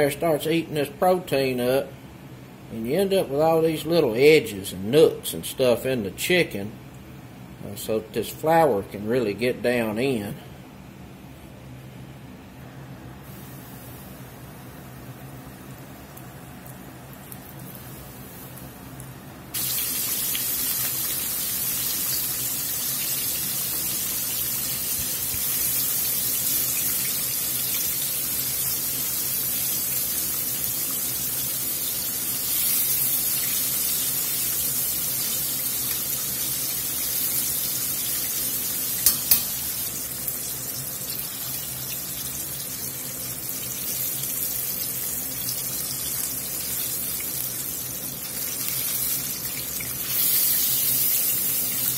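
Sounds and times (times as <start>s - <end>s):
food deep-frying in hot oil: 13.2s - 51.9s.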